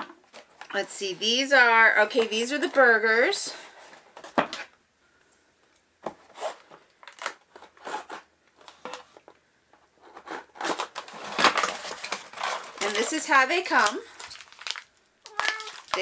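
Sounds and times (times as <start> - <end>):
blade cutting cardboard and tape: 10.2 - 11.0.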